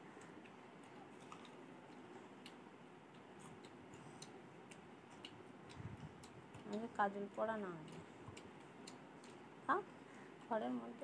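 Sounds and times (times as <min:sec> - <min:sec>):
baby sucking and gnawing: 0:00.5 - 0:06.8.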